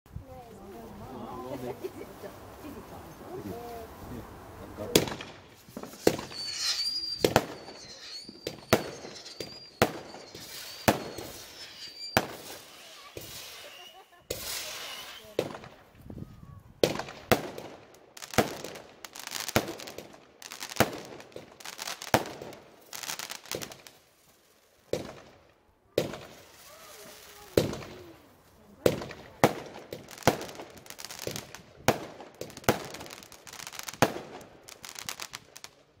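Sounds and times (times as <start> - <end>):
firework crackling: 0.5 - 36.0
firework bangs: 4.8 - 16.0, 16.8 - 23.9, 24.9 - 28.2, 28.8 - 35.7
thin high whistle: 6.0 - 15.4.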